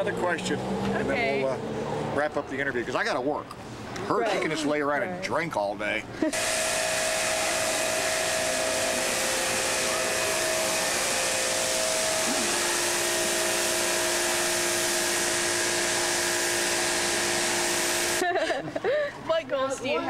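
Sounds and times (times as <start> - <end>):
water jet hissing: 6.3 - 18.2
pressure washer motor whine: 6.3 - 18.4.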